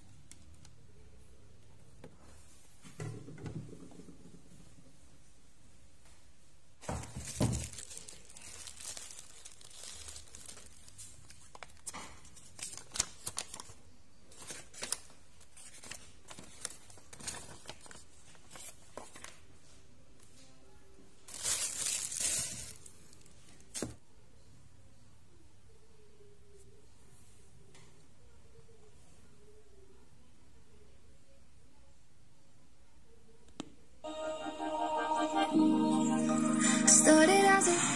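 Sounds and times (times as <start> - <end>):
paper crinkling and rustling: 6.8 - 19.7, 21.3 - 23.9.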